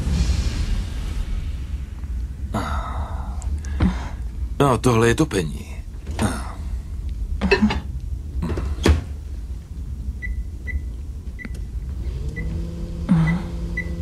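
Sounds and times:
microwave humming: 0:10.1 - 0:14.0.

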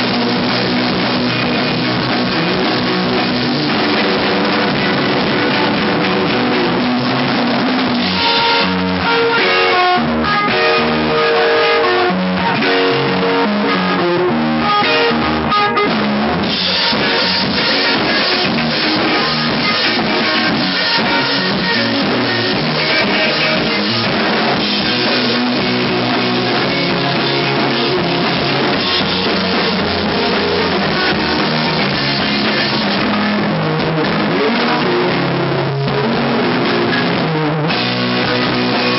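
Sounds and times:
rock band playing live: 0:00.0 - 0:38.9.

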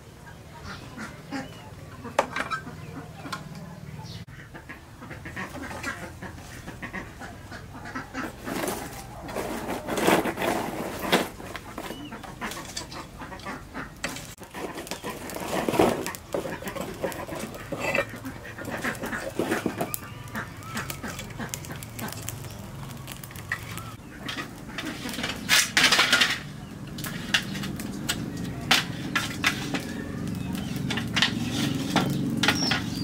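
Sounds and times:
birds calling: 0:00.0 - 0:10.0, 0:11.0 - 0:33.0
metal tongs clattering on firewood: 0:02.2 - 0:03.5, 0:08.2 - 0:33.0
wood fire crackling: 0:05.4 - 0:33.0.

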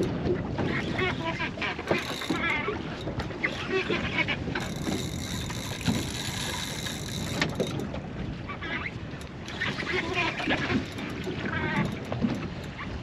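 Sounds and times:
boat noise on water: 0:00.0 - 0:13.0
knocks and crackles: 0:04.6 - 0:08.0.

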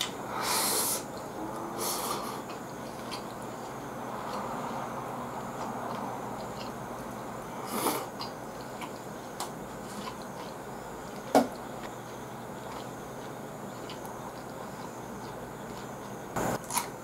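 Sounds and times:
background hiss: 0:00.0 - 0:02.6
faint chewing: 0:01.1 - 0:17.0.

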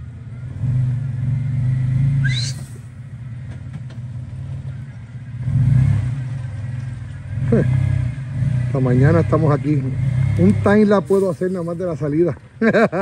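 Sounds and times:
car engine running under load: 0:00.0 - 0:13.0
short rising squeak: 0:02.2 - 0:02.9.

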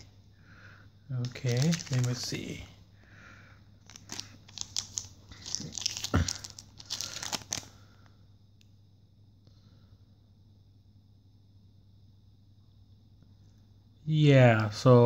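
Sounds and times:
foil wrapper crinkling: 0:01.2 - 0:02.7, 0:03.8 - 0:07.8.

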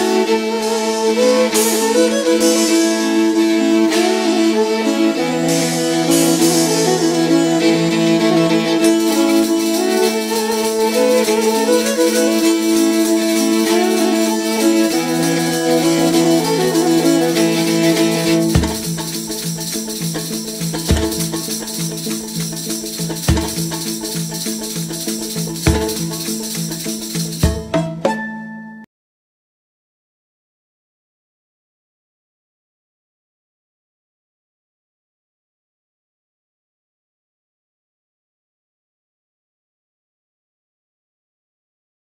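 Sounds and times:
background music melody: 0:00.0 - 0:28.9
deep drum hits: 0:18.6 - 0:19.0.

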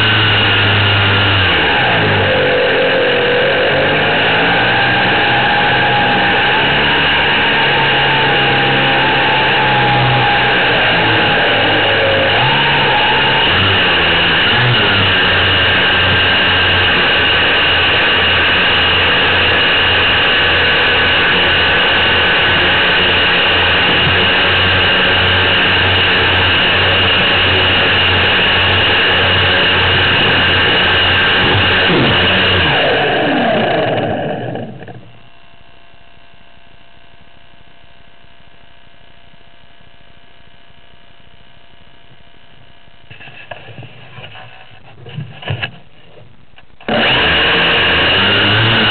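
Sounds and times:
model plane motor and propeller: 0:00.0 - 0:35.2, 0:46.8 - 0:48.9
faint steady hum: 0:33.0 - 0:47.0.

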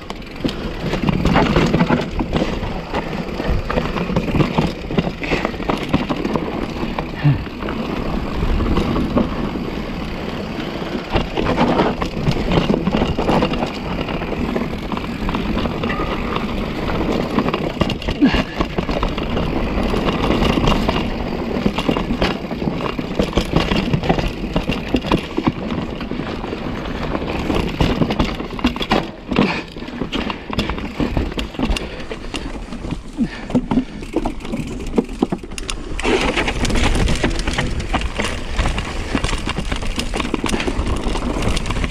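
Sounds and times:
bike knocks and rattles: 0:00.0 - 0:41.9
tyres rumbling over dirt and rocks: 0:00.0 - 0:41.9.

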